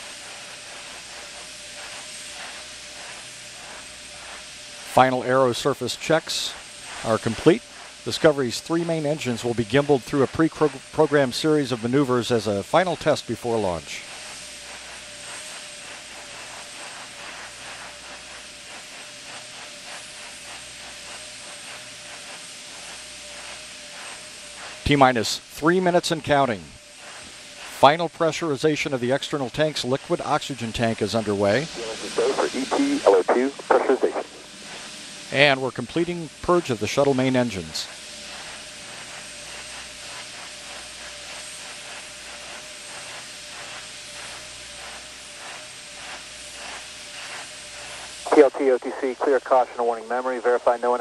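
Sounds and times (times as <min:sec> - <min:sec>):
steady hiss: 0:00.0 - 0:51.0
faint rapid pulsing: 0:29.8 - 0:51.0
faint steady hum: 0:31.4 - 0:35.2, 0:47.9 - 0:51.0
faint hum tone: 0:31.8 - 0:34.8.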